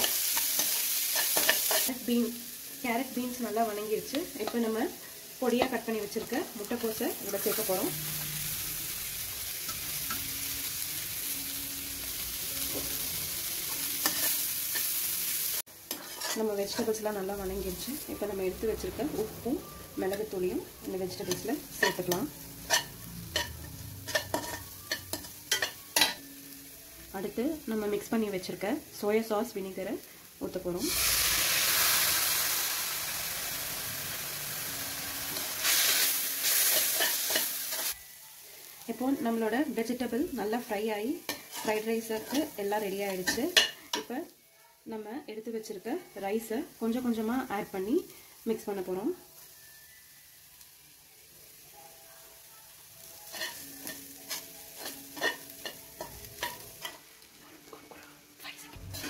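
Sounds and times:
vegetables sizzling in oil: 0:00.0 - 0:59.0
spatula scraping a pan: 0:15.9 - 0:16.9.

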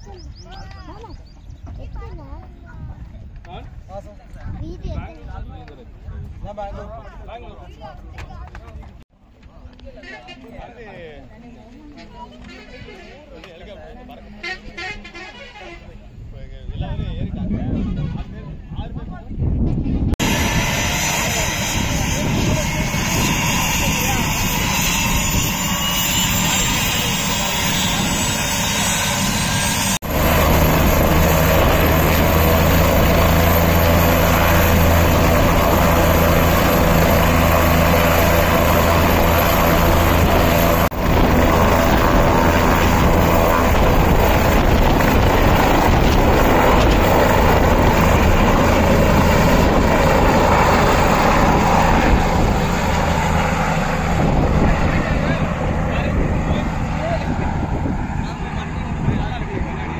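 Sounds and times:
helicopter rotor and engine: 0:20.1 - 0:59.9.

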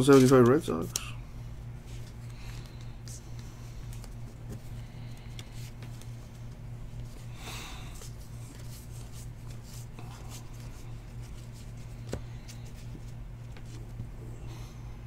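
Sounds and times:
cards rustling: 0:00.0 - 0:01.2, 0:01.8 - 0:14.0
trading cards rubbing and ticking: 0:01.8 - 0:07.2, 0:07.9 - 0:14.0.

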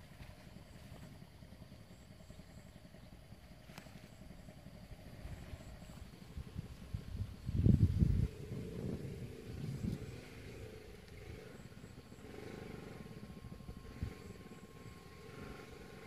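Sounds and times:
wind buffeting microphone: 0:04.9 - 0:12.6.

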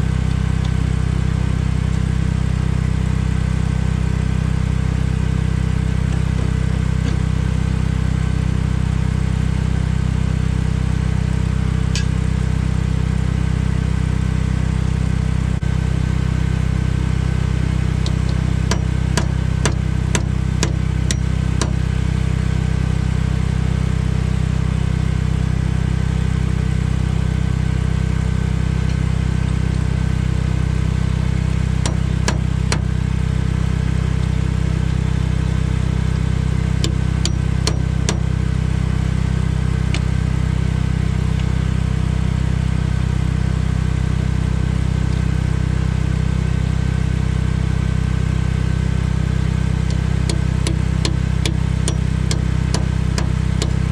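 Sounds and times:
small engine idling: 0:00.0 - 0:53.9
hand tools tapping steel: 0:49.9 - 0:53.9.

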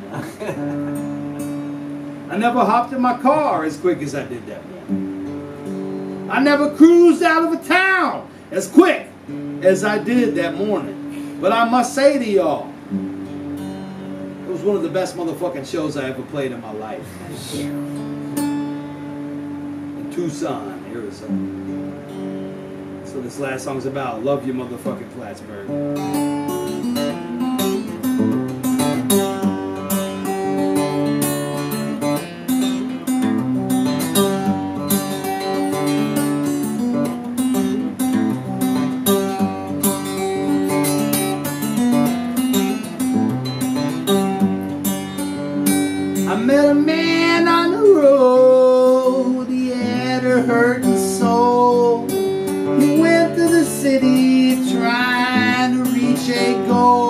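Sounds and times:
acoustic guitar strumming: 0:00.0 - 0:57.0
man singing: 0:46.3 - 0:57.0.

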